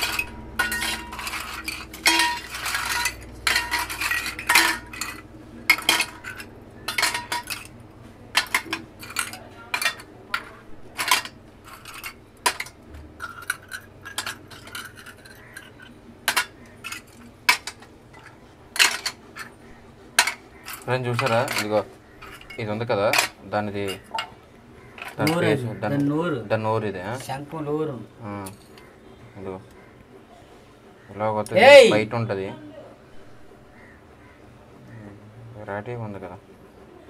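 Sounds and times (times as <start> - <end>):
shells clattering into steel bowl: 0.0 - 19.6, 20.2 - 25.4.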